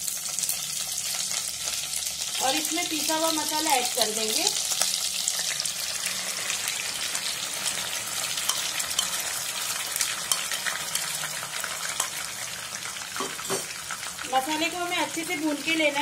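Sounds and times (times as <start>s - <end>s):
paste sizzling in hot oil: 0.0s - 16.0s
sharp pops of frying: 8.1s - 14.3s.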